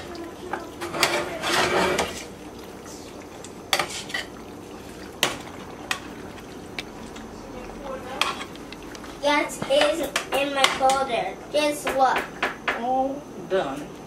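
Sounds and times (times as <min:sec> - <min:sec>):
spoon stirring pasta in sauce: 0:00.4 - 0:10.8.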